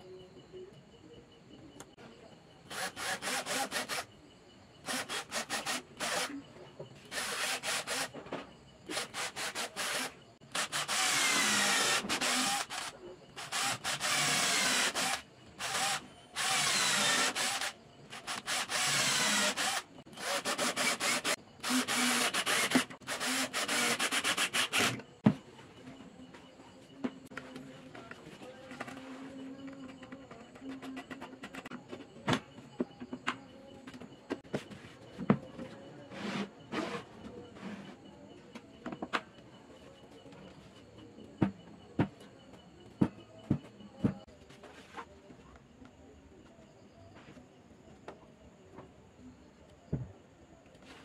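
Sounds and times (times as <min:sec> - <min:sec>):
cordless drill boring into wood: 0:02.7 - 0:04.1, 0:04.9 - 0:06.3, 0:07.1 - 0:08.1, 0:08.9 - 0:25.0.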